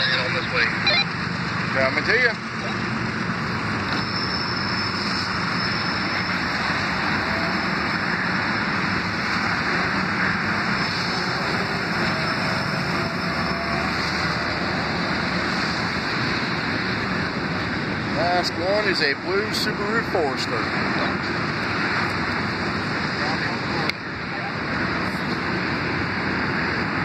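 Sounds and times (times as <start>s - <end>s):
freight train rolling past: 2.8s - 21.0s.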